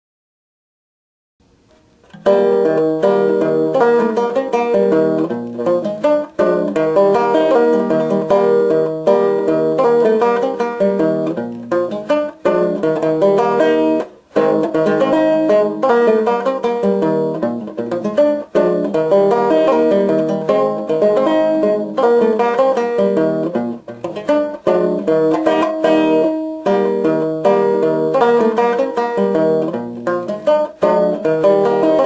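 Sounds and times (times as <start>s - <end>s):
solo banjo polka: 1.8s - 32.0s.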